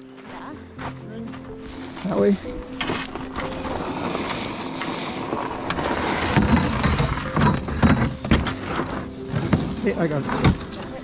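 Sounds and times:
canoe scraping over snow and ice: 0.0s - 11.0s
canoe bumps and knocks: 6.1s - 10.8s.

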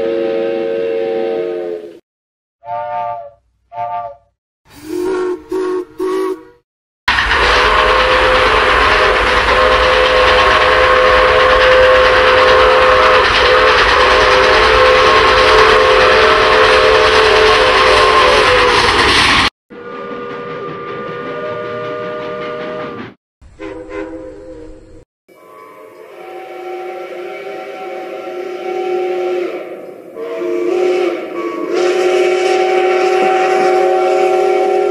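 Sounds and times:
steam locomotive whistle: 0.0s - 2.0s, 2.6s - 34.9s
steam hissing: 7.1s - 19.5s.

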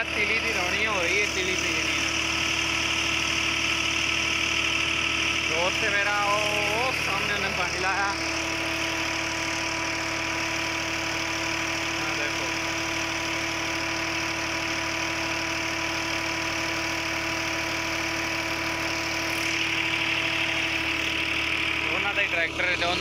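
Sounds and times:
diesel engine running: 0.0s - 23.0s
water gushing from pipe: 0.0s - 23.0s.

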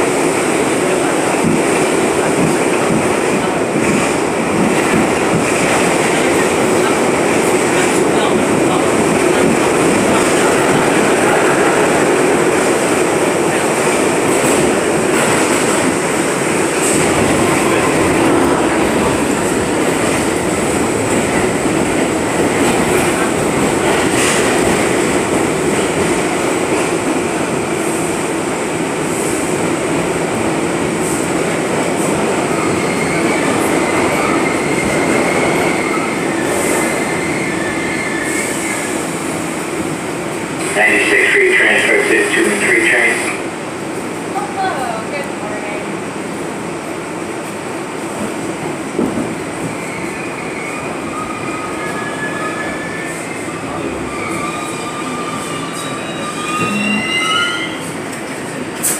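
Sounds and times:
subway train wheels rumbling: 0.0s - 58.9s
faint wheel squeal: 53.8s - 57.9s.

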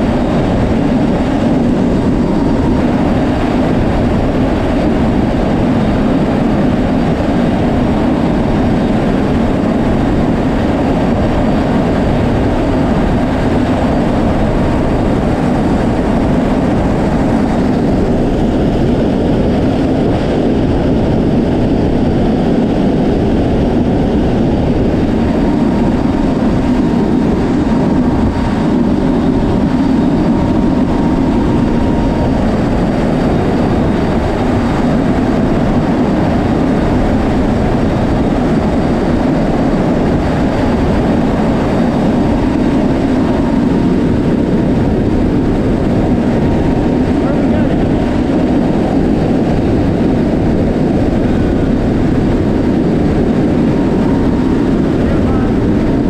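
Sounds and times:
turboprop engines roaring: 0.0s - 56.0s
wind rushing: 0.0s - 56.0s.

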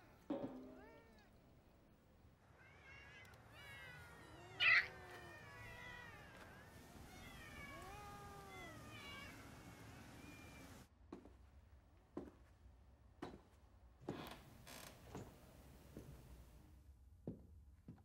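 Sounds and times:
cats meowing: 0.0s - 1.8s, 2.4s - 10.9s
cat harsh cry: 2.6s - 10.8s.

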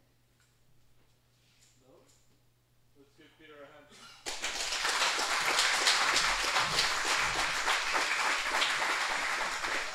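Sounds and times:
audience applauding: 4.2s - 9.9s.

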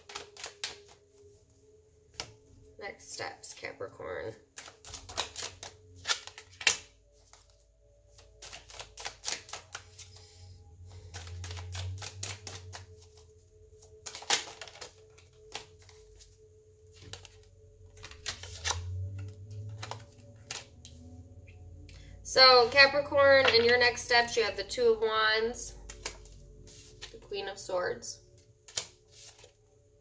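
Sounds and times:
cards being shuffled: 0.0s - 1.3s, 4.5s - 10.3s, 10.9s - 13.2s, 13.8s - 16.3s, 16.9s - 21.1s, 25.8s - 27.3s, 28.4s - 29.6s.

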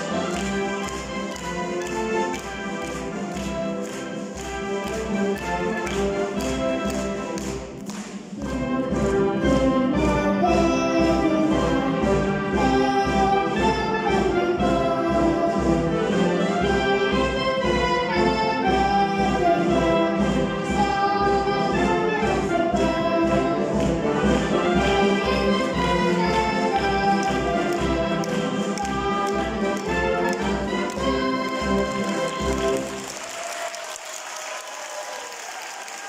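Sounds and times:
concert band playing: 0.0s - 33.8s
child singing: 9.9s - 15.8s, 18.0s - 23.9s, 25.2s - 30.4s.

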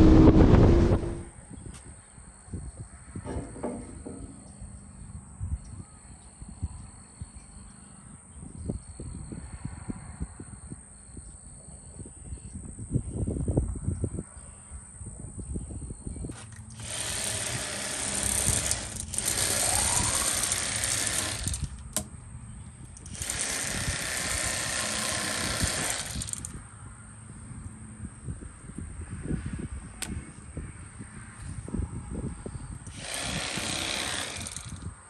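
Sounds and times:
electric fillet knife buzzing: 16.8s - 21.7s, 32.9s - 34.8s.

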